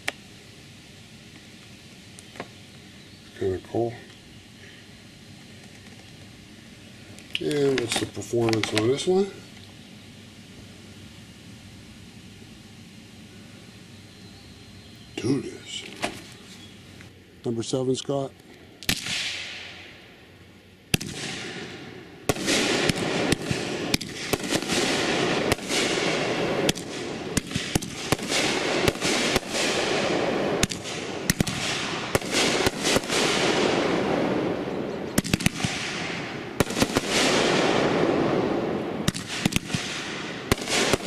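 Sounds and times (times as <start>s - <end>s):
dense hiss of bursting fireworks: 0.0s - 41.0s
fireworks bangs: 18.8s - 20.0s, 20.9s - 41.0s.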